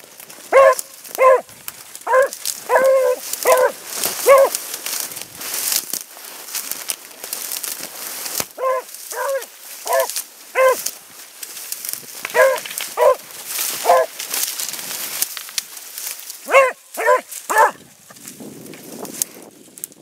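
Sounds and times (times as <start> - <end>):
dry brush rustling: 0.0 - 20.0
dog baying: 0.5 - 4.6, 8.6 - 10.8, 12.3 - 13.2, 13.8 - 14.1, 16.5 - 17.8.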